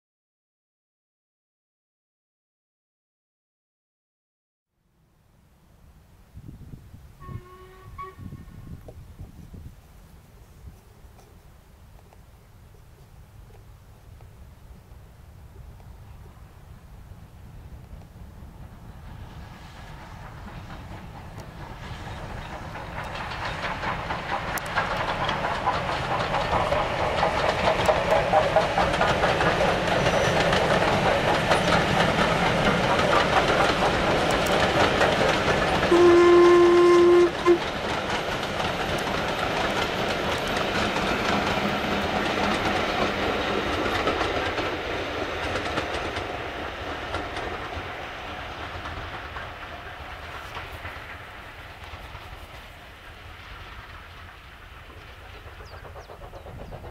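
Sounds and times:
steam whistle: 7.2 - 8.5, 35.9 - 37.7
steam locomotive exhaust: 12.9 - 56.9
wheels rolling on rails: 19.6 - 56.9.

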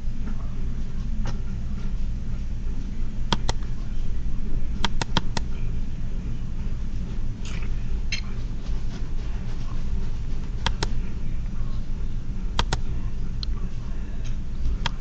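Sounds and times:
steady low hum: 0.0 - 15.0
sharp clicks: 3.3 - 3.7, 4.8 - 5.5, 10.6 - 11.0, 12.6 - 12.8.

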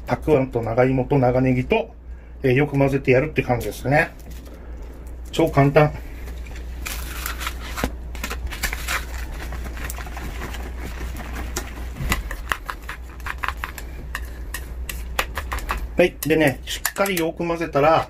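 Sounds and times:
chopsticks stirring sticky beans: 8.6 - 18.0
chopsticks clicking on bowl: 13.4 - 17.3.

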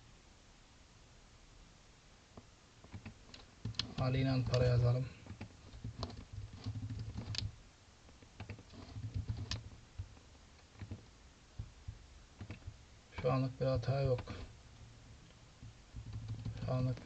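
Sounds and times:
computer keyboard typing: 2.9 - 7.5, 8.4 - 11.0, 12.4 - 12.8, 16.0 - 17.0.

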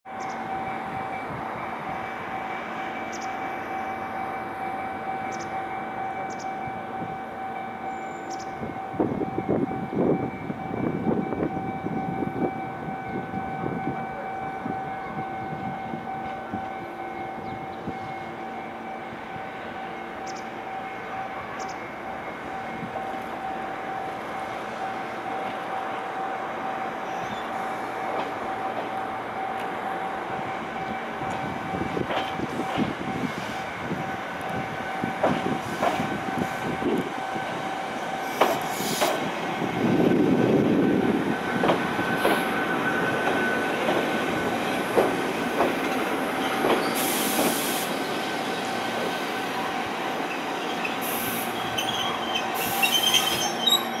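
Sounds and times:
low train rumble: 0.1 - 54.0
train wheels clicking over rail joints: 30.8 - 37.2, 38.1 - 54.0
air hissing: 38.4 - 39.2, 46.9 - 48.0, 50.9 - 51.6.

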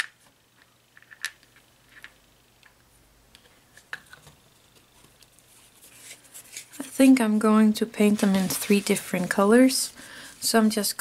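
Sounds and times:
small pieces clicking and tapping: 0.0 - 2.8.

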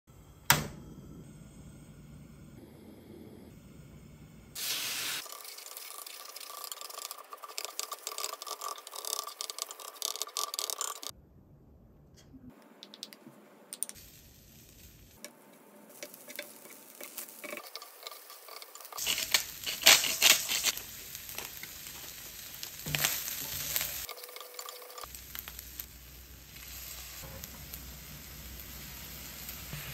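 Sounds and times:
rice sizzling in a frying pan: 4.6 - 9.4, 14.0 - 29.9
wooden spatulas scraping a pan: 16.0 - 20.8.

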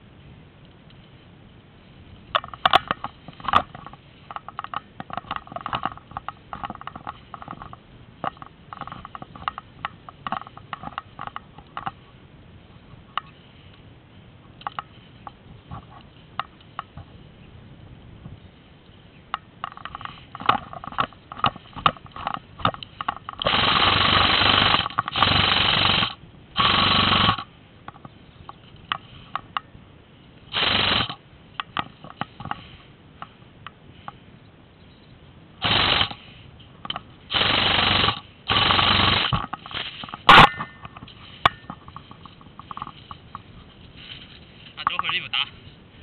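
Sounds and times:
airsoft gun rattling bursts: 2.3 - 12.0, 19.6 - 29.6, 30.5 - 33.3, 35.6 - 45.5
sharp clicks: 36.8 - 43.5, 44.8 - 45.5.

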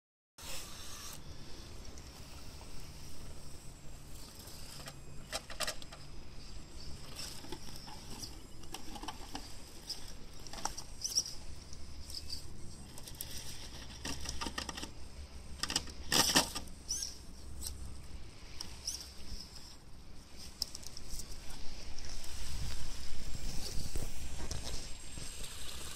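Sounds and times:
electric motor whining: 0.4 - 5.2.

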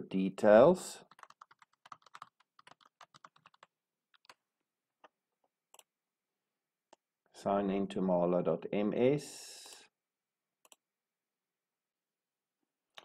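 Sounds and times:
typing on computer keyboard: 1.1 - 4.4.

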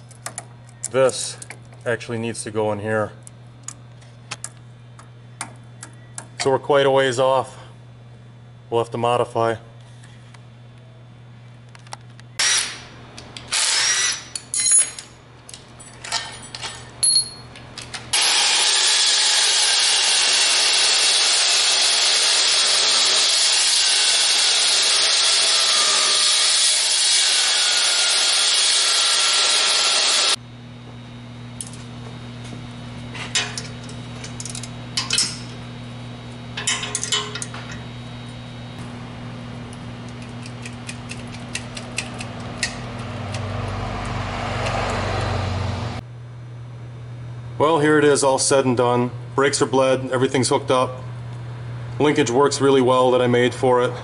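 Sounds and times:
angle grinder cutting metal: 13.5 - 14.3, 18.2 - 30.4
hand tools clinking: 15.8 - 17.6.

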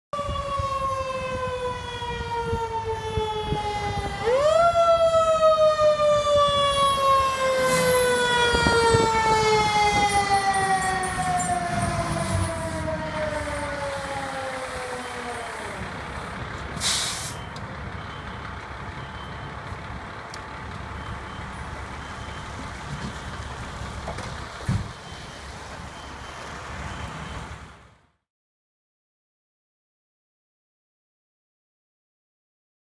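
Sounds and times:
truck engine running: 9.9 - 27.9
air brake hiss: 16.8 - 17.5.

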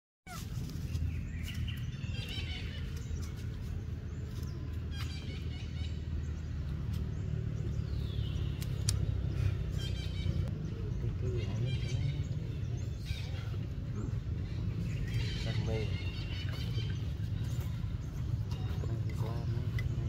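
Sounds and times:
steady low rumble: 0.5 - 20.0.

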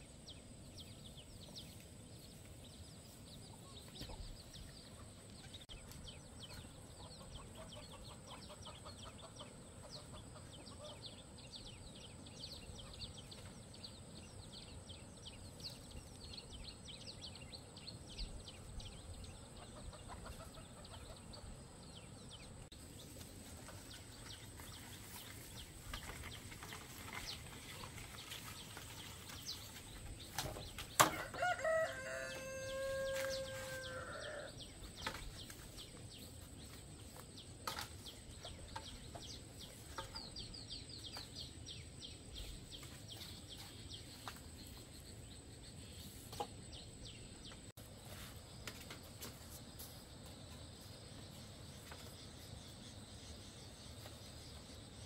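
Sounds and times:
chickens clucking: 3.5 - 11.2, 19.3 - 21.8
chicks peeping: 18.3 - 21.6.

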